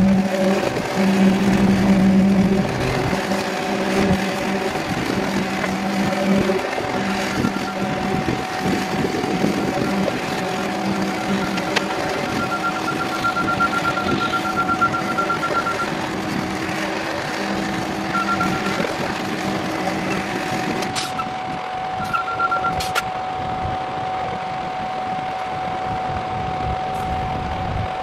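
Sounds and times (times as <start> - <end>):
pumper truck whine: 0.0 - 28.0
truck engine drone: 0.0 - 28.0
fast electronic beeping: 6.0 - 8.0, 11.0 - 16.0, 18.0 - 19.0, 22.0 - 22.8.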